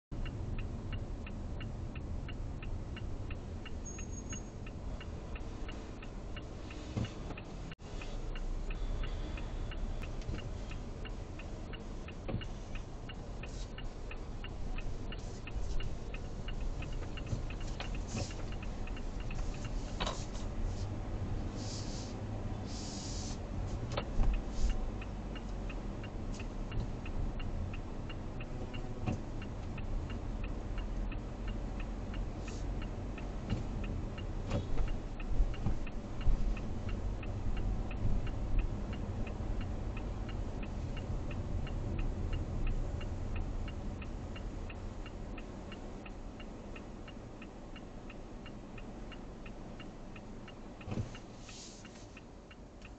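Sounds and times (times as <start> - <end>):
road and engine rumble in car: 0.1 - 52.9
fast steady ticking: 0.2 - 20.6.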